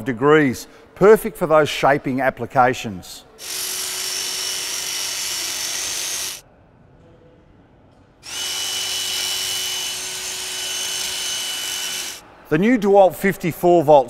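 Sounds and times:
hedge trimmer motor running: 0:03.4 - 0:06.4, 0:08.2 - 0:12.2.

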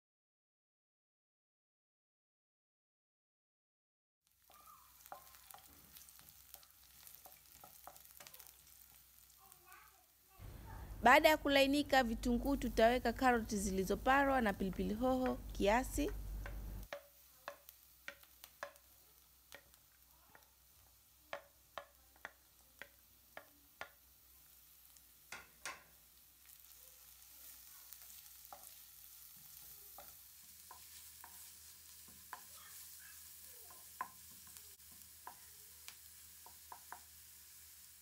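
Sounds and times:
vegetables sizzling in pan: 0:04.3 - 0:38.0
wooden spatula knocking pan: 0:06.5 - 0:08.4, 0:13.9 - 0:18.9, 0:19.5 - 0:20.5, 0:21.3 - 0:24.0, 0:25.3 - 0:26.0, 0:29.9 - 0:32.9, 0:33.7 - 0:35.6, 0:36.4 - 0:37.1.

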